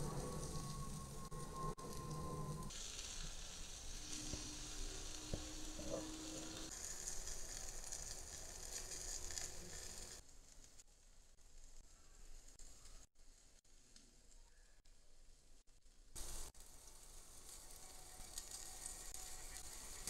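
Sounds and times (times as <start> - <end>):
steak sizzling over charcoal: 0.0 - 11.7, 16.1 - 20.0.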